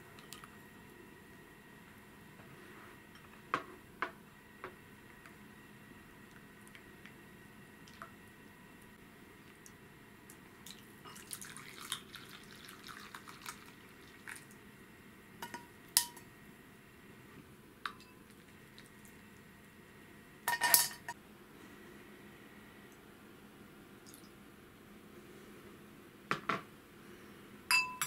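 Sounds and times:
liquid trickling through sieve: 0:10.6 - 0:14.6
kitchenware clattering: 0:20.5 - 0:21.2.

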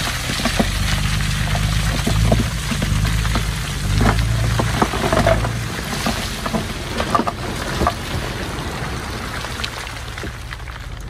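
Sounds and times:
knocks and rattles: 0:00.0 - 0:08.2
diesel engine humming: 0:00.0 - 0:11.0.

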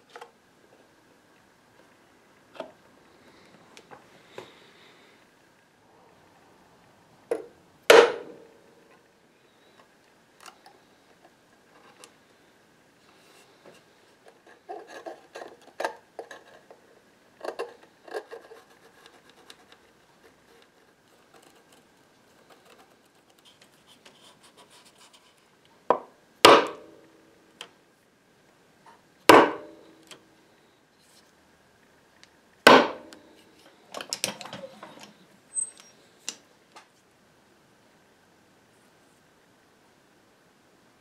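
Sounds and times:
chisel scraping wood: 0:14.5 - 0:16.7.

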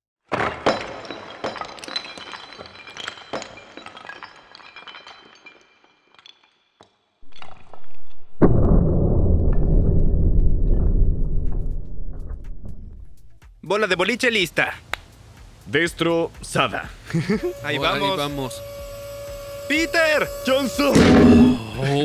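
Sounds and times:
ceramic plates shattering: 0:00.3 - 0:06.7
shards clinking and ringing: 0:00.7 - 0:06.8
loud low rumble: 0:08.4 - 0:13.3.

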